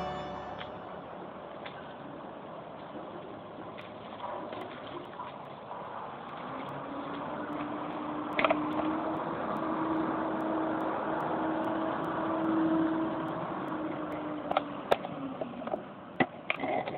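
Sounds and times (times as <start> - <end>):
rushing water: 0.0 - 15.6
vehicle engine hum: 5.6 - 16.4.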